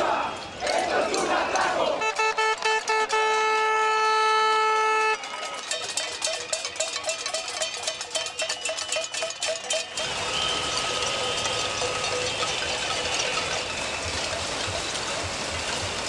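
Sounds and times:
crowd din: 0:00.0 - 0:16.0
metal pots clanging: 0:05.2 - 0:15.6.

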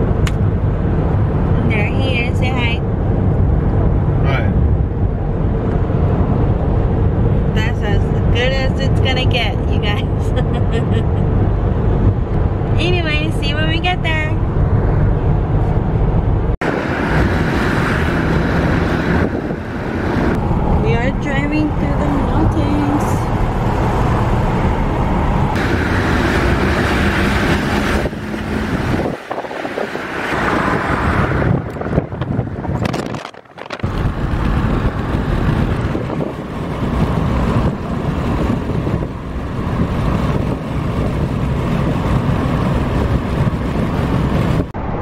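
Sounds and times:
road and engine noise inside car: 0:00.0 - 0:45.0
wind buffeting microphone: 0:11.2 - 0:45.0.

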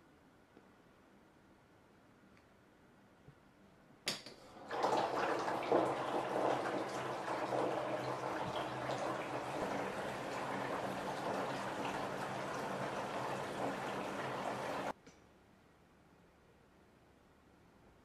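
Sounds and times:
water gushing into bathtub: 0:04.4 - 0:14.9.

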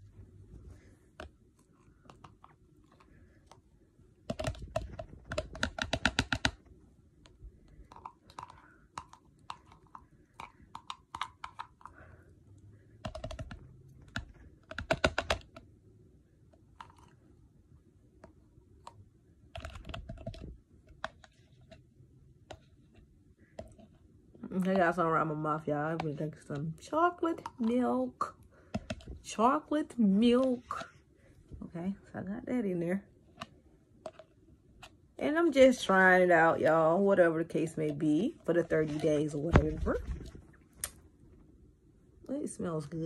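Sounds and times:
plastic fork clicking on plastic tubs: 0:04.3 - 0:12.0, 0:13.0 - 0:15.7, 0:18.2 - 0:21.8, 0:27.2 - 0:27.9, 0:28.7 - 0:29.2.

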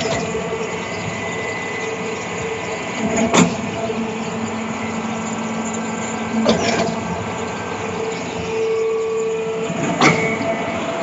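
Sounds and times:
concrete pump droning: 0:00.0 - 0:11.0
sharp mechanical clunk: 0:06.4 - 0:07.0.

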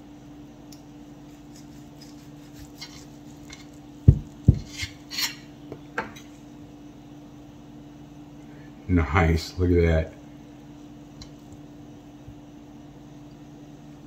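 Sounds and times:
faint steady hum: 0:00.0 - 0:14.0
knife and fork scraping a board: 0:01.3 - 0:03.8, 0:04.4 - 0:05.5
dull knocks: 0:04.1 - 0:04.7.

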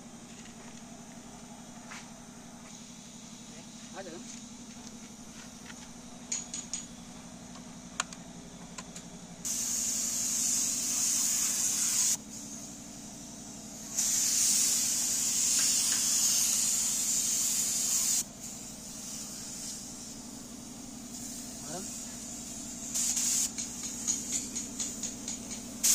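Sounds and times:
steady low hum: 0:00.0 - 0:25.9
paint spray gun spraying: 0:09.4 - 0:25.9.

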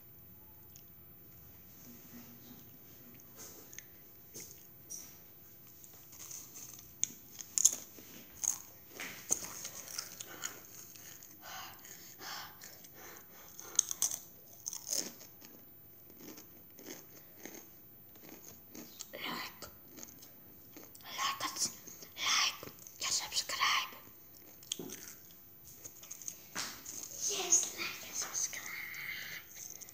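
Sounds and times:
crunching tortilla chips: 0:06.1 - 0:11.0, 0:13.6 - 0:19.0.

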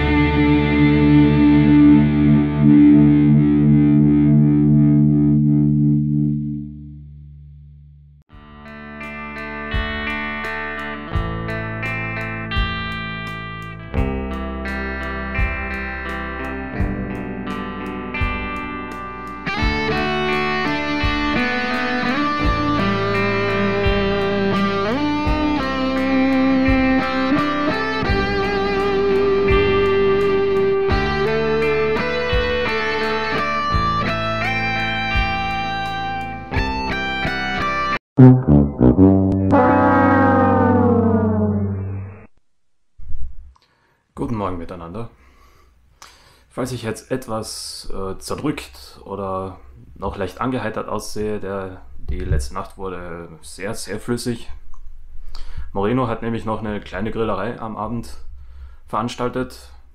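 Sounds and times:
distorted electric guitar chord: 0:00.0 - 0:06.6, 0:38.2 - 0:42.3
sliding guitar melody: 0:00.0 - 0:06.8, 0:08.6 - 0:42.3
rock drums: 0:09.6 - 0:17.3, 0:18.2 - 0:28.8.

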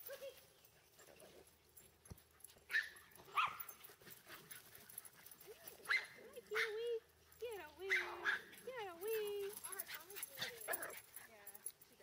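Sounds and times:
small dog yipping: 0:02.7 - 0:03.8, 0:05.9 - 0:06.7, 0:07.9 - 0:08.5.

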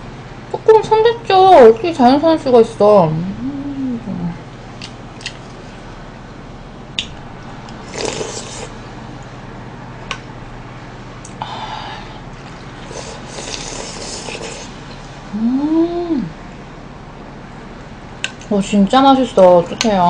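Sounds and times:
person humming: 0:03.2 - 0:04.4, 0:15.3 - 0:16.4
chewing: 0:07.7 - 0:08.8, 0:12.4 - 0:14.8
person slurping soup: 0:07.8 - 0:08.8, 0:12.8 - 0:14.8.

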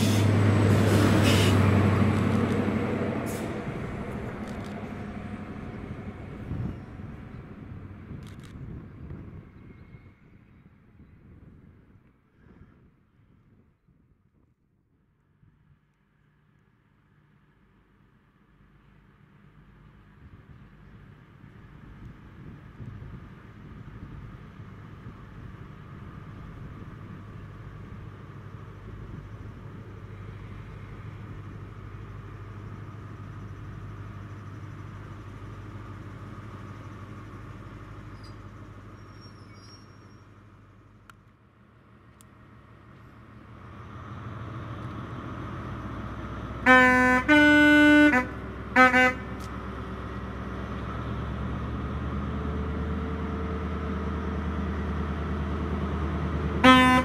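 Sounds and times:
diesel train engine hum: 0:00.0 - 0:57.0
two-tone train horn: 0:46.6 - 0:49.4, 0:56.6 - 0:57.0.

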